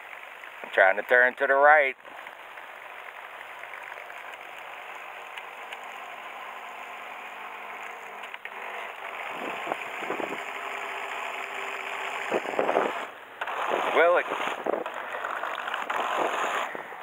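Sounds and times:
model boat motor running: 0.0s - 17.0s.

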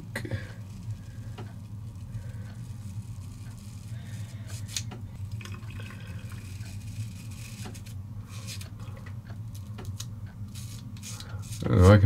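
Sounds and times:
steady low hum: 0.0s - 12.0s
razor scraping stubble: 0.6s - 5.0s, 6.3s - 8.7s, 9.5s - 12.0s.

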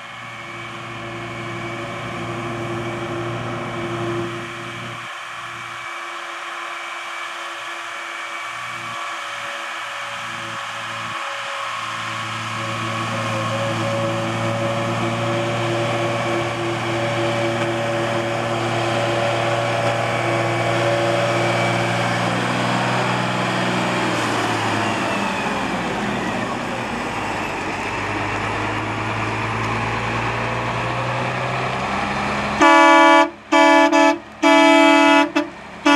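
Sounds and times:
diesel truck engine running: 0.0s - 35.9s
truck horn toots: 32.6s - 35.9s.

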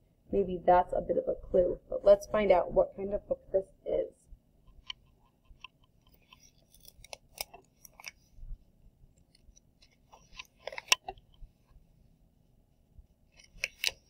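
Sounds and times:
paper pages rustling: 9.2s - 11.2s, 13.3s - 14.0s
paper clicks: 9.2s - 11.3s, 13.4s - 14.0s.

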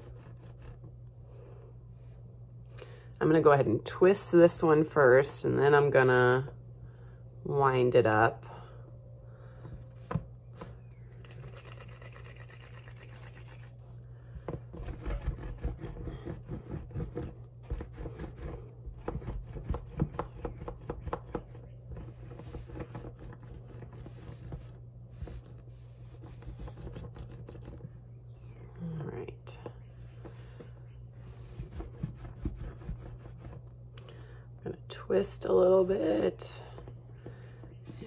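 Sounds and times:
steady low hum: 0.0s - 38.0s
hands rolling clay: 14.4s - 28.0s.

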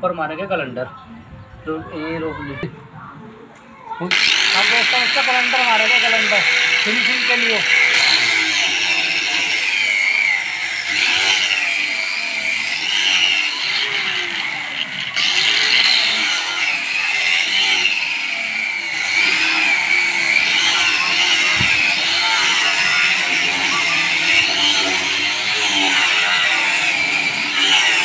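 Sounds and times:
angle grinder sanding wood: 4.1s - 28.0s.

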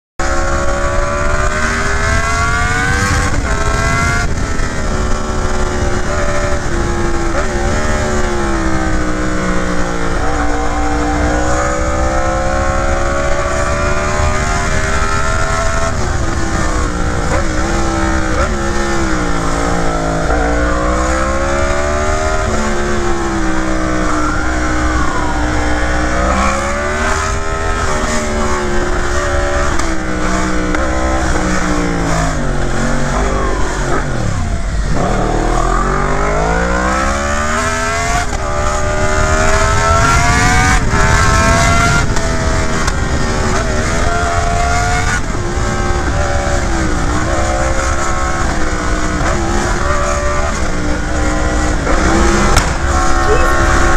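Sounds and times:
motorcycle engine revving: 0.2s - 53.9s
road noise: 0.2s - 53.9s
wind rush: 0.4s - 53.9s.

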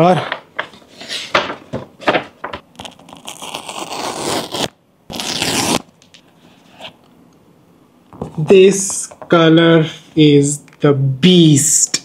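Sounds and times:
seal strip tearing: 2.7s - 6.2s.

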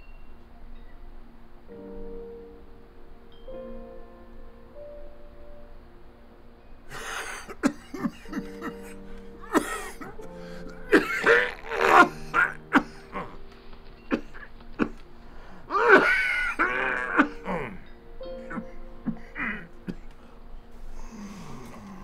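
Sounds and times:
soft sustained music: 0.0s - 22.0s
elderly man coughing: 6.9s - 10.3s, 10.9s - 13.4s, 14.1s - 15.0s, 15.7s - 17.8s.

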